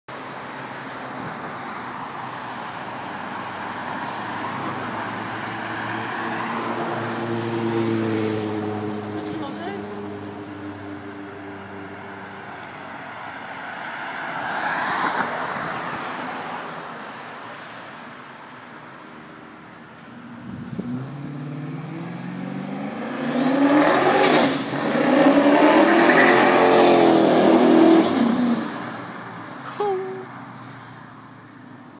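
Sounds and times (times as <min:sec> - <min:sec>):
light passing traffic: 0:00.1 - 0:31.9
pickup truck accelerating hard: 0:20.8 - 0:28.8
high turbo whistle: 0:23.5 - 0:28.2.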